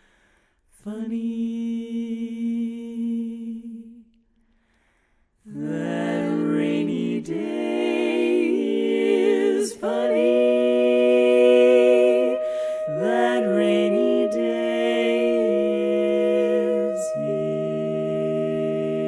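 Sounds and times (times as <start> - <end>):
women singing close harmony: 5.5 - 19.0.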